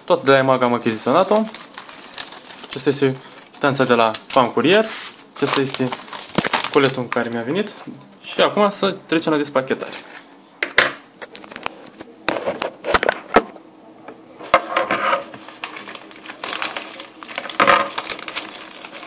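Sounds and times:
paper envelope rustling: 0.9s - 8.0s, 9.8s - 10.3s, 14.5s - 19.0s.

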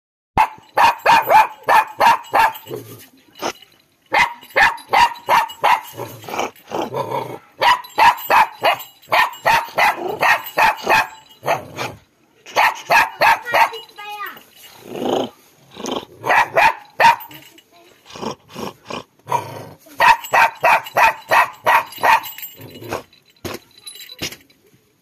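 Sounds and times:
puppy barking: 0.4s - 2.8s, 4.1s - 6.1s, 7.3s - 11.9s, 12.5s - 13.9s, 16.2s - 17.4s, 20.0s - 23.0s.

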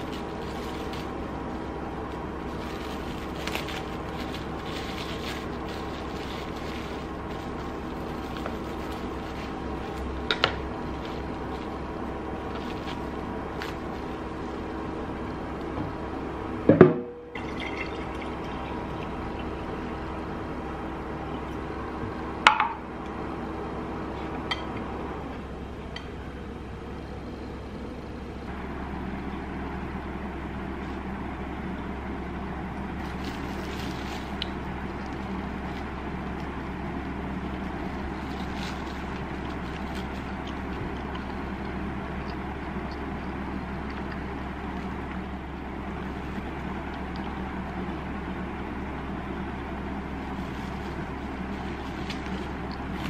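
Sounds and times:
background hum: 0.0s - 53.0s
juice pouring into a glass jar: 17.4s - 20.2s.

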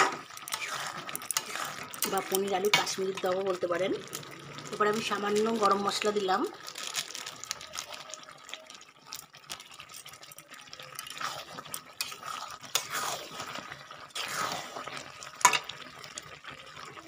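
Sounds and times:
metal spatula scraping pan: 0.0s - 3.2s, 11.1s - 13.6s.

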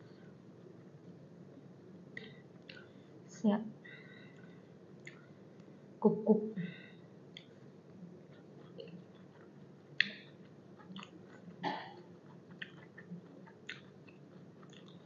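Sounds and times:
moist mouth clicks: 4.4s - 5.3s, 8.3s - 15.0s
chewing crunchy food: 7.3s - 15.0s.

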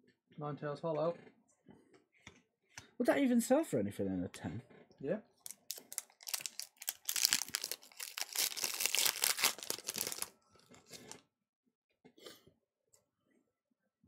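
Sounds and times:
foil wrapper crinkling: 5.4s - 11.2s
cards rustling: 5.5s - 11.2s.

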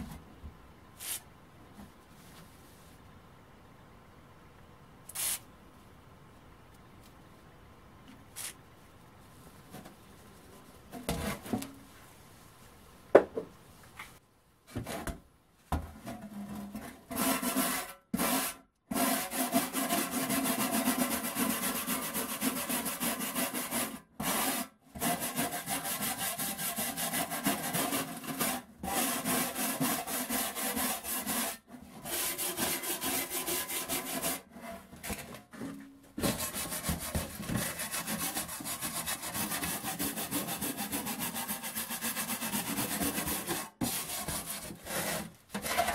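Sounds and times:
knock: 13.2s - 13.5s
file scraping rusty metal: 17.1s - 35.1s, 36.2s - 45.9s.

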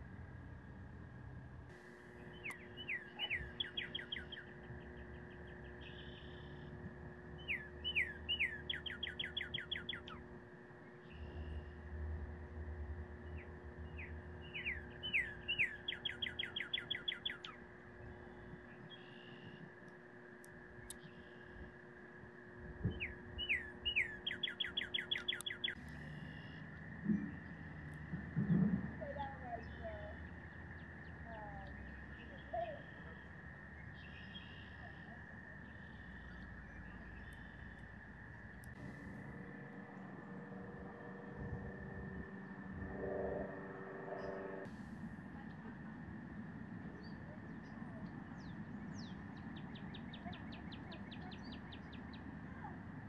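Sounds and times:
bird singing clear whistles: 2.3s - 4.5s, 7.4s - 10.2s, 14.0s - 17.6s, 22.9s - 26.6s, 33.9s - 35.0s
cardinal singing whistles: 2.3s - 4.5s, 7.4s - 10.2s.

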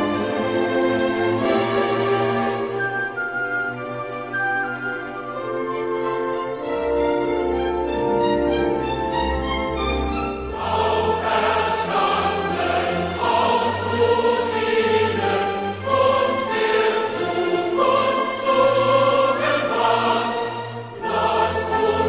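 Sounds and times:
choir singing held chords: 10.4s - 22.0s.

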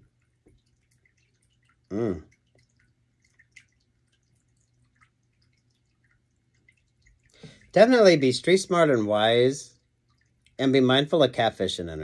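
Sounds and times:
low steady hum: 0.0s - 12.0s
man's short vocal sound: 1.9s - 2.2s.

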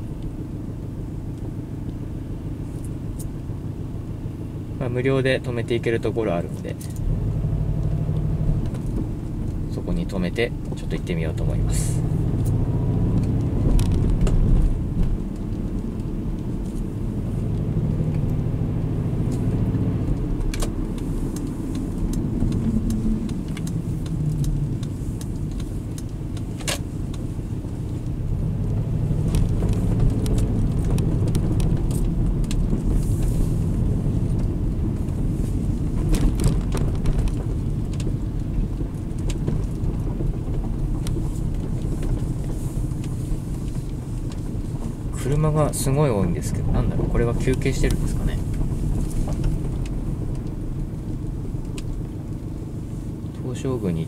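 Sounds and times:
car engine rumble: 0.0s - 54.0s
road noise: 0.0s - 54.0s.

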